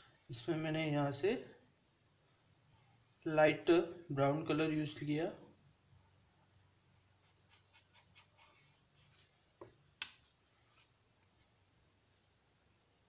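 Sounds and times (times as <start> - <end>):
paintbrush scratching on paper: 7.2 - 9.5, 10.6 - 11.0.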